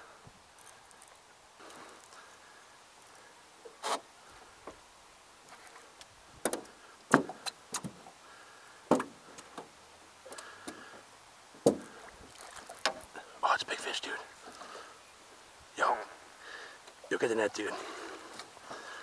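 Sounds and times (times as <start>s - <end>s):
knocks against boat hull: 6.4s - 8.0s, 8.9s - 9.1s, 11.6s - 11.9s.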